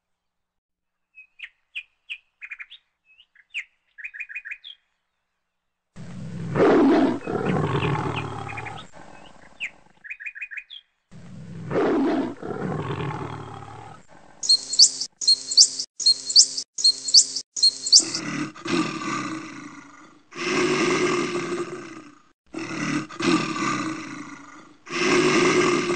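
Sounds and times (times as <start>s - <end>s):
bird chirps: 14.4s - 18.2s
short shrill animal calls: 14.4s - 18.2s
long animal call: 14.4s - 25.9s.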